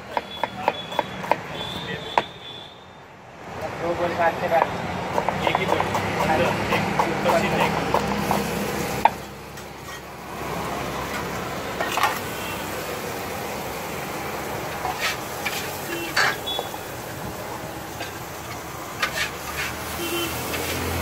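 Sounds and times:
knife slicing tomatoes on wood: 4.6s - 9.2s.

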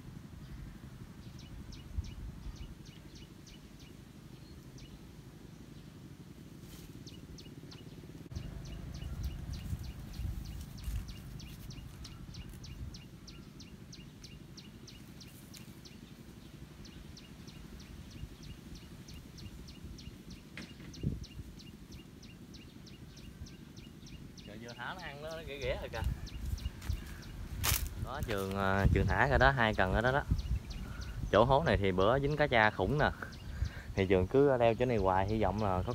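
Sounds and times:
low rumble of wind: 0.0s - 35.9s.

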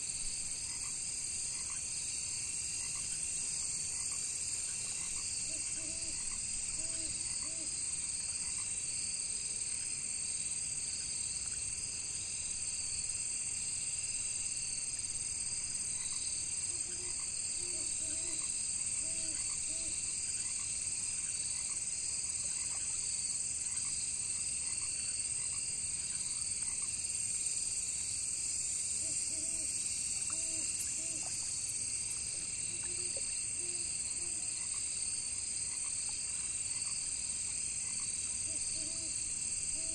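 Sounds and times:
crickets trilling: 0.0s - 39.9s
frogs croaking: 0.5s - 9.1s, 15.0s - 27.2s, 28.8s - 39.9s.

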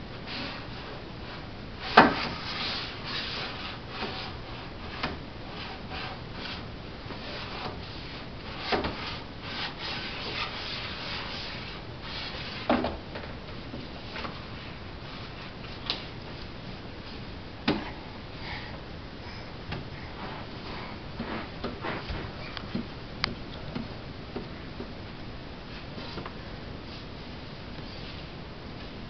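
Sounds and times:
books scraping on wooden shelf: 1.8s - 13.0s, 20.1s - 22.5s.

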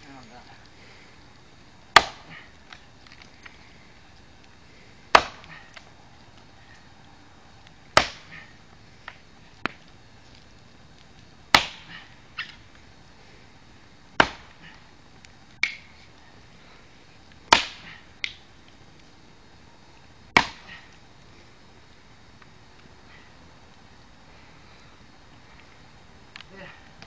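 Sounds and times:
wood cracking: 0.5s - 6.9s
axe chopping wood: 1.9s - 2.5s, 5.1s - 5.9s, 8.0s - 8.5s, 11.5s - 12.6s, 14.2s - 14.8s, 15.6s - 15.9s, 17.5s - 18.4s, 20.4s - 20.9s.

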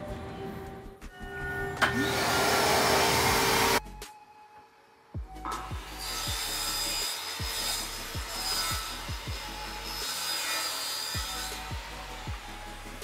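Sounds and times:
circular saw cutting: 1.2s - 3.8s, 5.3s - 13.0s.

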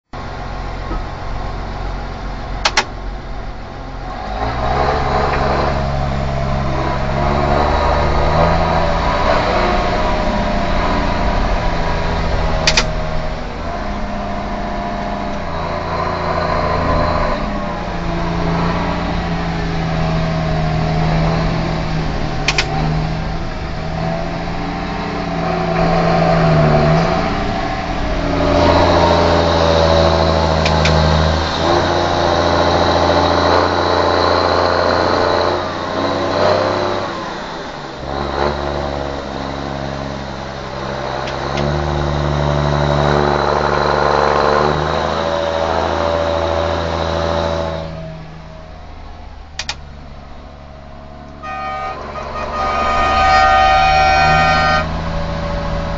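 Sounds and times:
tractor diesel engine running: 0.1s - 55.9s
sharp click: 2.6s - 3.0s, 12.6s - 13.0s, 22.4s - 22.8s, 49.6s - 49.8s.

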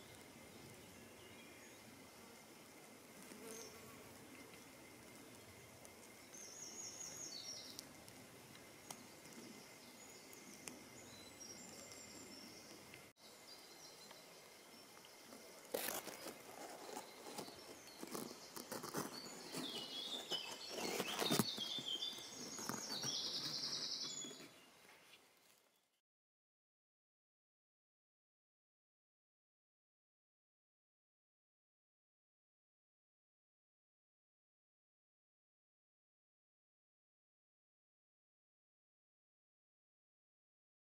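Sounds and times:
rustling and clicking: 15.3s - 25.7s.

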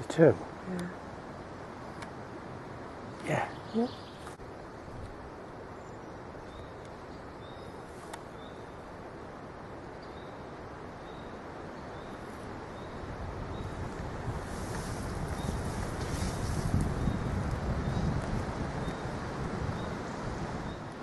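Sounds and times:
breeze rustling leaves: 0.0s - 21.0s
wind buffeting microphone: 11.1s - 21.0s.

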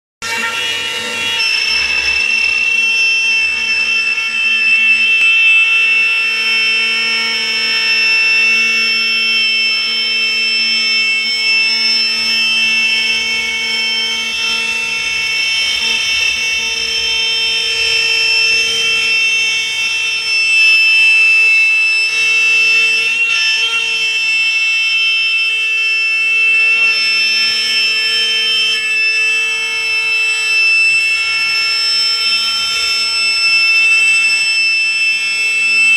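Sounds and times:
router cutting plywood: 0.2s - 9.9s, 11.4s - 25.5s
cnc router spindle whine: 0.2s - 35.9s.

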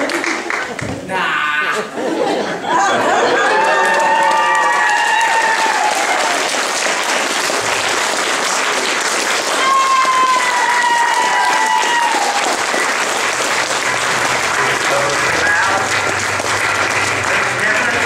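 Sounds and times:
audience applauding: 0.0s - 1.1s, 2.8s - 18.0s
high falling cheers: 3.1s - 6.8s, 9.4s - 13.0s.

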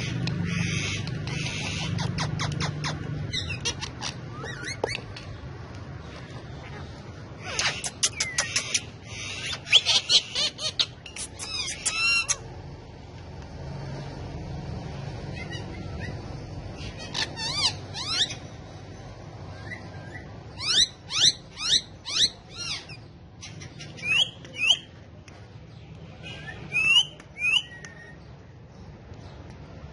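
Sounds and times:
parakeets squawking: 0.0s - 12.6s, 15.1s - 18.7s, 19.5s - 24.9s.

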